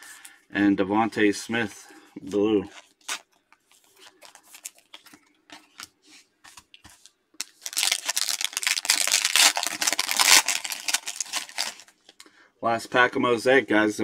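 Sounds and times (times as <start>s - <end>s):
foil wrapper crinkling and tearing: 2.8s - 5.9s, 7.0s - 11.9s.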